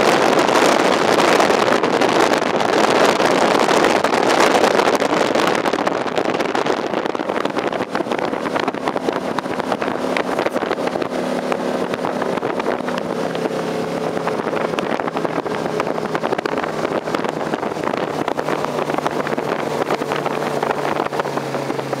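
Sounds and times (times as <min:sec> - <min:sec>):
boat engine drone: 0:00.0 - 0:22.0
rushing wind and water: 0:00.0 - 0:22.0.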